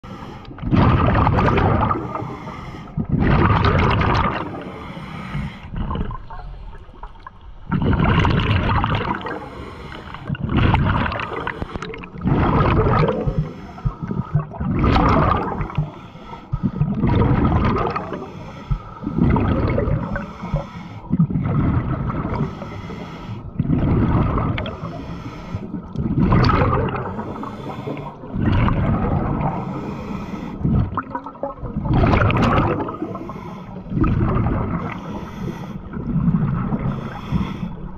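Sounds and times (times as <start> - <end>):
regulator inhale hiss: 0.0 - 0.5, 2.1 - 3.0, 4.6 - 5.7, 9.3 - 10.3, 11.3 - 12.0, 13.4 - 14.4, 15.8 - 16.9, 18.2 - 19.1, 20.0 - 21.1, 22.4 - 23.5, 24.7 - 25.7, 27.1 - 28.2, 29.5 - 30.6, 33.1 - 33.9, 34.9 - 35.9, 36.9 - 37.9
gurgling exhaled bubbles: 0.0 - 37.9.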